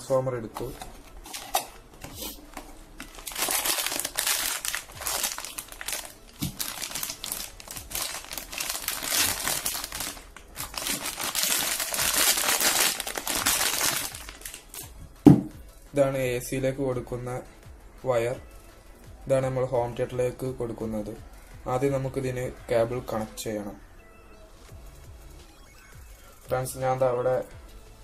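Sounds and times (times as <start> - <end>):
plastic bag crinkling: 3.0 - 14.8.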